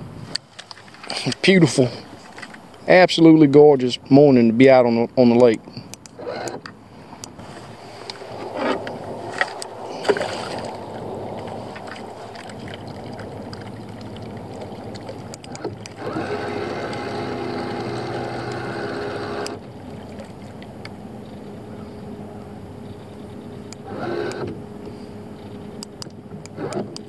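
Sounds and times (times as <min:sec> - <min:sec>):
electric trolling motor humming: 0:06.0 - 0:27.0.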